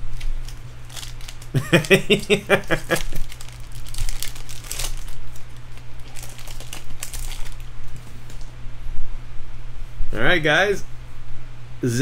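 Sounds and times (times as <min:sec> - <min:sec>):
foil wrapper tearing and crinkling: 0:00.0 - 0:08.5.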